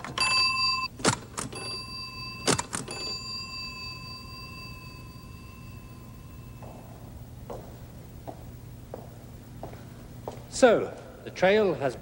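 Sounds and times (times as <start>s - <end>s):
small bell ringing: 1.6s - 6.7s.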